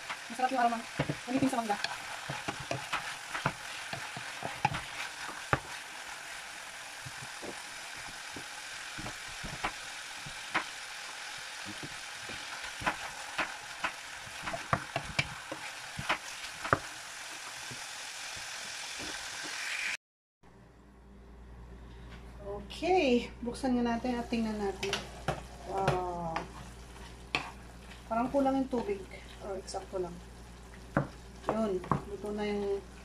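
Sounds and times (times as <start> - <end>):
wooden spatula stirring: 0.0 - 16.9, 24.8 - 29.5
meat sizzling in a skillet: 0.0 - 20.0.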